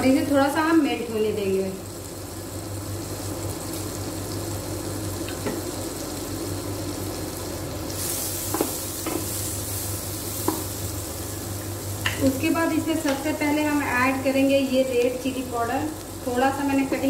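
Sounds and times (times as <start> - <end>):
butter sizzling in a pan: 0.0 - 17.0
spatula tapping pan: 10.4 - 10.7.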